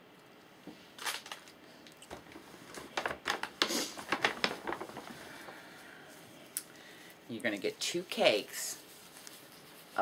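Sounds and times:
gift bag crinkling rustles: 1.0s - 6.2s, 7.4s - 10.0s.

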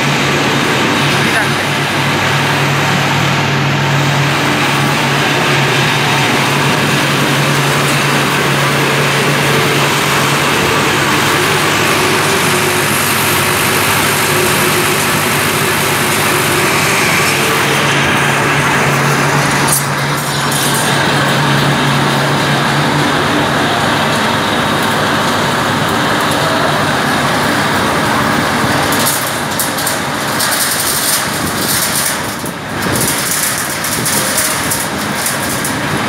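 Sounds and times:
large fan rushing air: 0.0s - 36.0s.

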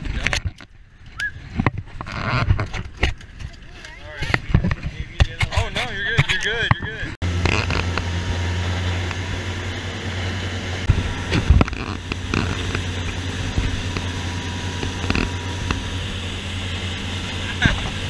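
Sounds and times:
boat engine droning: 4.3s - 18.0s
rush of boat wake: 7.3s - 18.0s.

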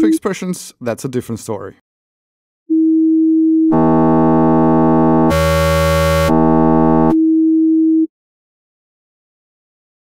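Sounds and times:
bright synthesizer tone: 3.7s - 7.2s
plain sine wave tone: 3.7s - 8.0s.

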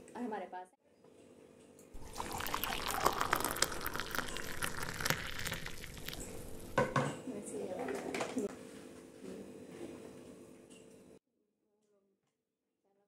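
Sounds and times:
water pouring into glass: 2.0s - 7.0s.

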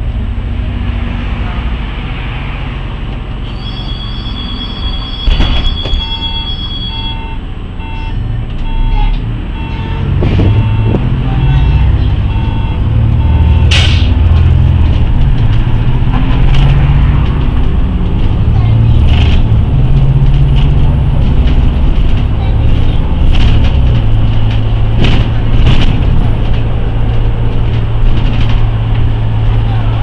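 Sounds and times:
bus engine pulling away: 0.0s - 30.0s
bus doors shutting: 3.2s - 7.2s
electronic warning beeper: 3.6s - 13.7s.

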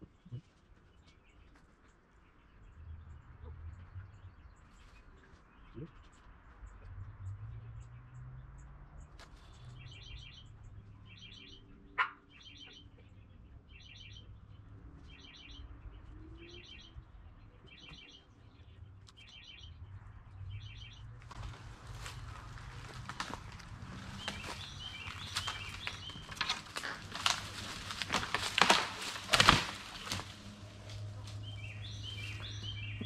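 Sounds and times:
rustling: 21.2s - 33.0s
songbird trilling: 31.4s - 33.0s.

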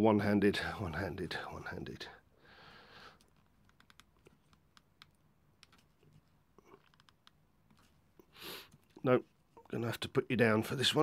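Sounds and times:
fingers clicking plastic connector: 3.2s - 5.9s, 6.8s - 7.9s
soft rustle: 3.2s - 10.1s.

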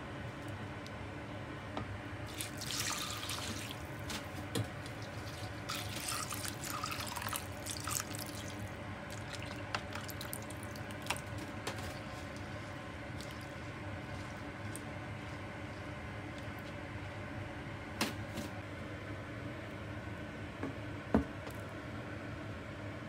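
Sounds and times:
liquid splashing and trickling: 2.3s - 4.3s, 4.9s - 12.5s.

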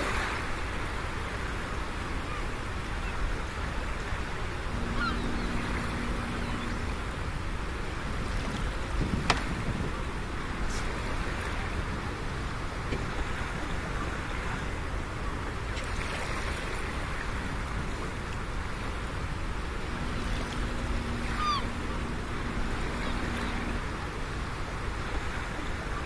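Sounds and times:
wind: 0.0s - 26.0s
faint low steady hum: 3.6s - 26.0s
short high downward chirp: 4.7s - 6.9s.

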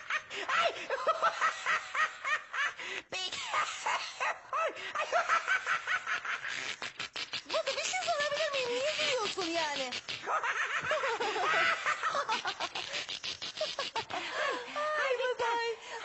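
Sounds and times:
squeaky puppet laughter: 3.4s - 14.4s.

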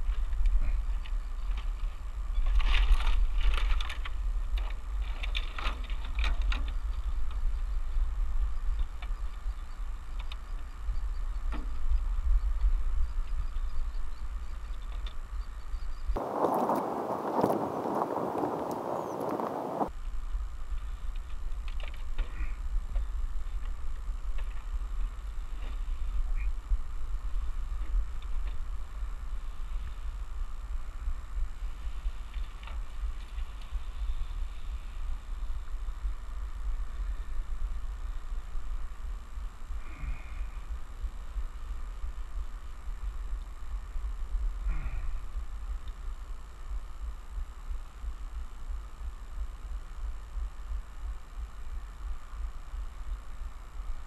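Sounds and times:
rope clicks and rustles: 0.0s - 7.6s, 20.7s - 26.2s
wind buffeting microphone: 0.0s - 21.6s
wind rumble on microphone: 0.0s - 54.0s.

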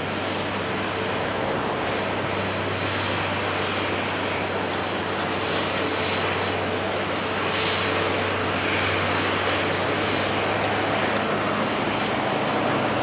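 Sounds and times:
jet engines of airliner: 0.0s - 13.0s.

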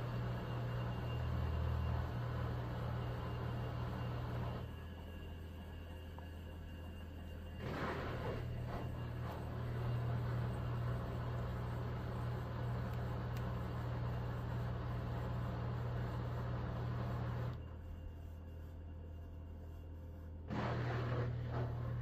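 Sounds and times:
washer drum motor humming: 7.6s - 17.6s, 20.5s - 22.0s.

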